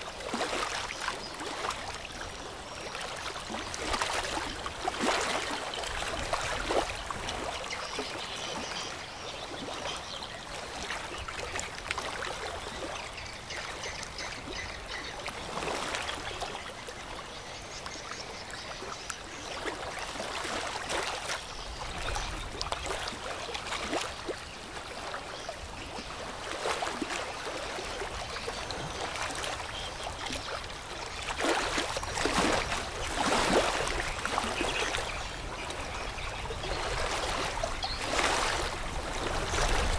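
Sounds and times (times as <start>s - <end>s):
water rushing and splashing: 0.0s - 8.9s, 19.3s - 39.9s.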